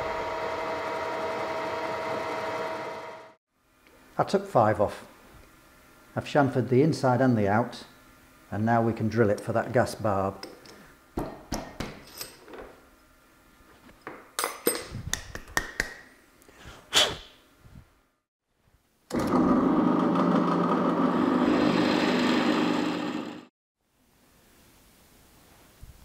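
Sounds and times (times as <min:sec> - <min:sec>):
pillar drill running: 0:00.0 - 0:03.4, 0:19.1 - 0:23.5.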